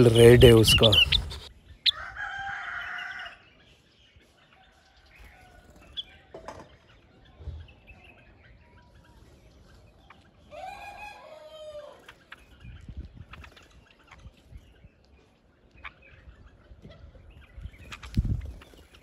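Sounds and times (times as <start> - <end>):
rooster crowing: 1.9 - 3.4, 10.5 - 12.0.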